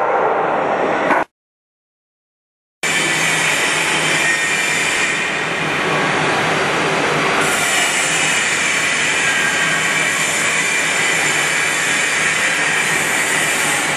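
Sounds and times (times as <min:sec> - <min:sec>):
heavy machinery running: 0:02.8 - 0:13.9.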